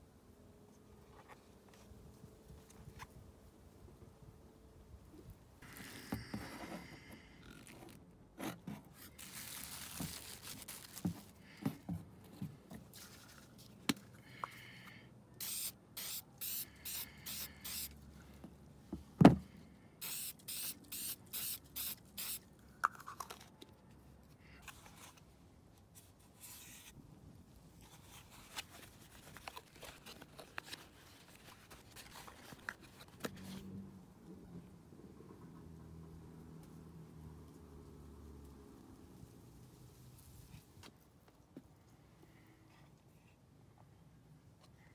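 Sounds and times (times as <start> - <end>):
aerosol spray hissing bursts: 15.4 - 17.9, 20.0 - 22.4.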